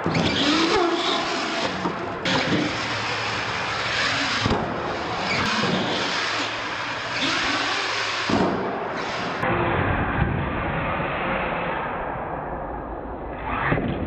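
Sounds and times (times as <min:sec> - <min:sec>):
rc truck motor and tyres: 0:00.0 - 0:09.9.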